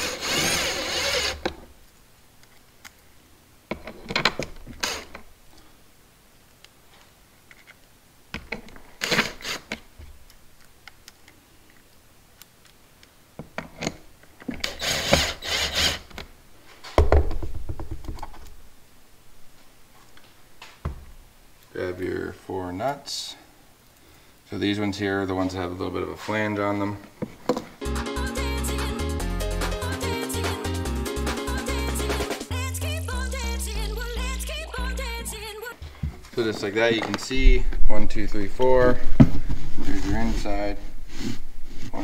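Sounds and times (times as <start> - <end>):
impact driver running: 0.0 - 1.5, 14.6 - 16.0.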